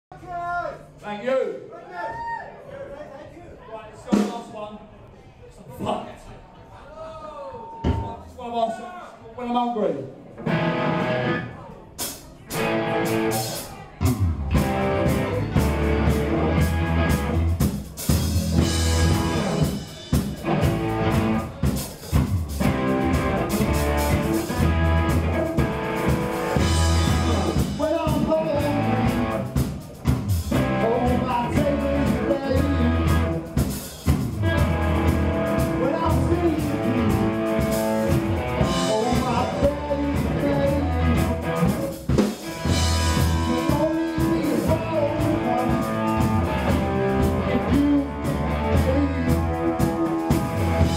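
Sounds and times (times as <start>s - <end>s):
live rock band playing: 10.3s - 50.9s.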